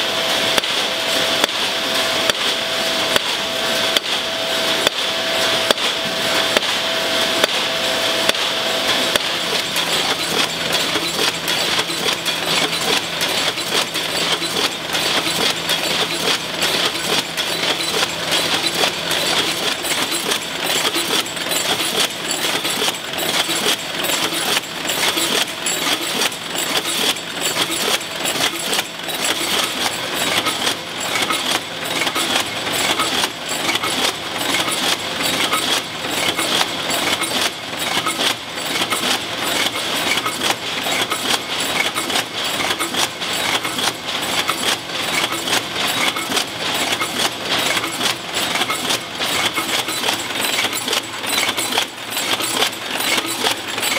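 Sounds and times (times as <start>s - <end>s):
machinery metallic clatter: 0.0s - 53.9s.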